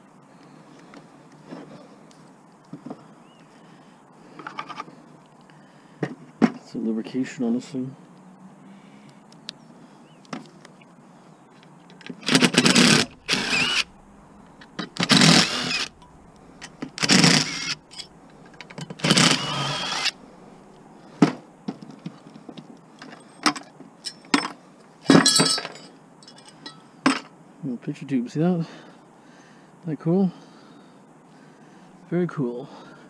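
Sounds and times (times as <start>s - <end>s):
cordless driver running: 12.1s - 20.2s
metal parts clinking: 12.1s - 20.2s, 25.1s - 26.9s.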